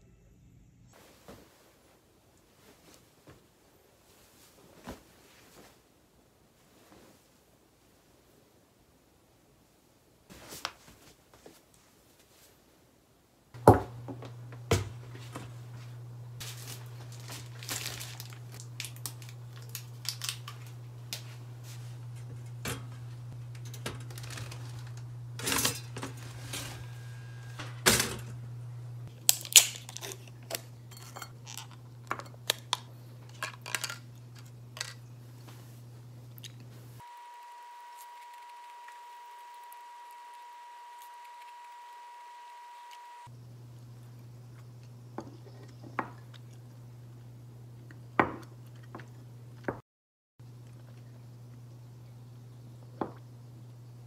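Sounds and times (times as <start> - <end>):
soft rustles: 1.0 - 8.4, 10.3 - 12.8
steady low hum: 13.6 - 49.7
dishes and utensils clattering: 22.2 - 26.8, 30.9 - 32.7.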